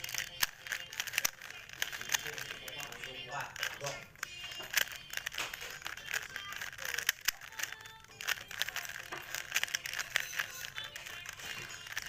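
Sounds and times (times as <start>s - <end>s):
puzzle cube clicking: 0.0s - 12.0s.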